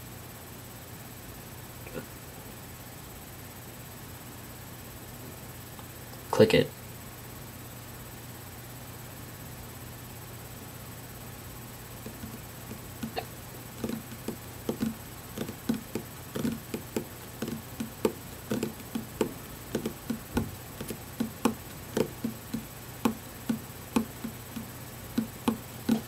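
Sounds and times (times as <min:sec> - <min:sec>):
fingers tapping on wooden table: 0:12.0 - 0:26.0.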